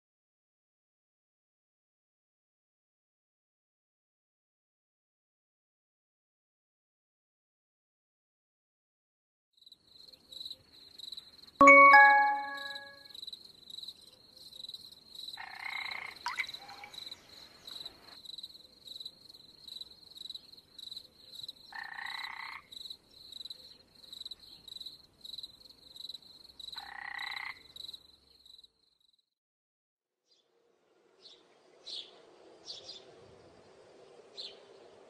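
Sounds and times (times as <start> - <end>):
faint pulsing high chirping: 10.0 - 15.4
frogs croaking: 13.2 - 18.8, 19.8 - 28.7.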